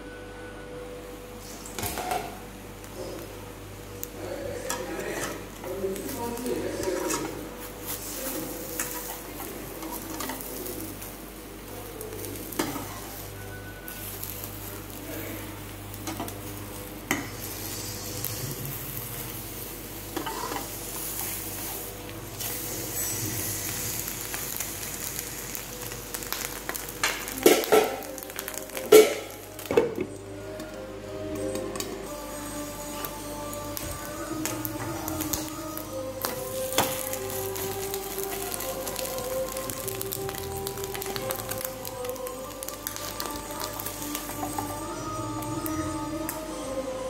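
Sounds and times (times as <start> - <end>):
eggs sizzling in frying pan: 1.4 - 31.0, 32.0 - 46.9
spatula scraping pan: 6.6 - 10.4, 20.2 - 21.7.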